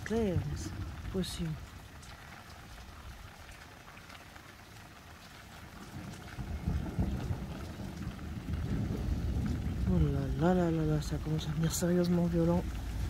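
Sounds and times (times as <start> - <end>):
steady rain: 0.0 - 13.0
low rumble: 12.2 - 13.0.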